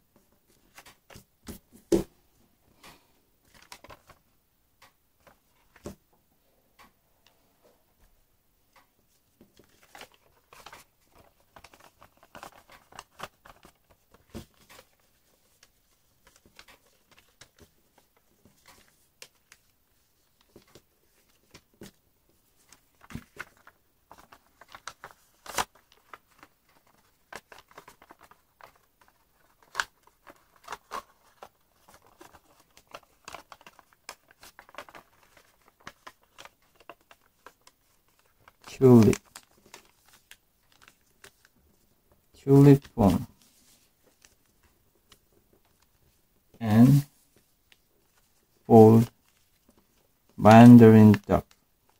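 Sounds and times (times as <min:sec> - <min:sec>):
paper rustling and crinkling: 0:00.2 - 0:02.0, 0:03.4 - 0:04.2, 0:09.1 - 0:46.2, 0:46.8 - 0:50.4, 0:51.1 - 0:51.9
paper crack: 0:09.5 - 0:22.0, 0:22.6 - 0:41.6.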